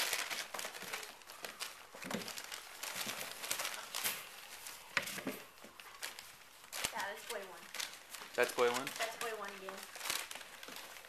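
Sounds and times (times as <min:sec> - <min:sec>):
newspaper crinkling and rustling: 0:00.0 - 0:11.0.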